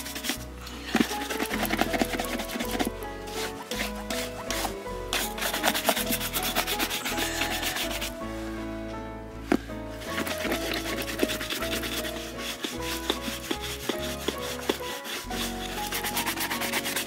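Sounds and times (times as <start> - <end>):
brush scrubbing leather boot: 0.0 - 8.2, 10.0 - 17.0.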